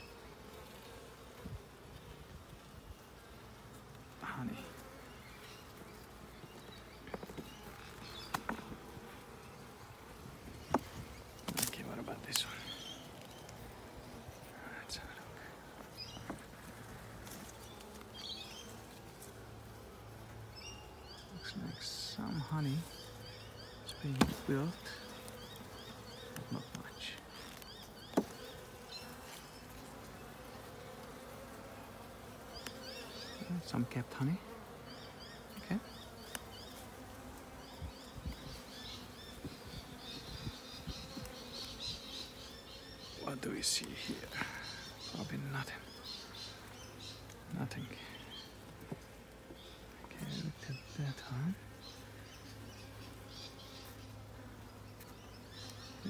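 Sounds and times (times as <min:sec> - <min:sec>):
honeybees humming: 0:00.0 - 0:56.0
hive tool prying wooden frames: 0:27.4 - 0:28.5.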